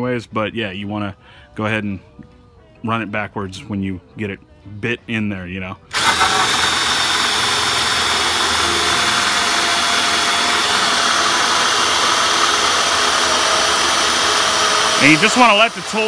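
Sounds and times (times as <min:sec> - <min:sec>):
drill cutting plastic with hole saw: 0:05.9 - 0:16.0.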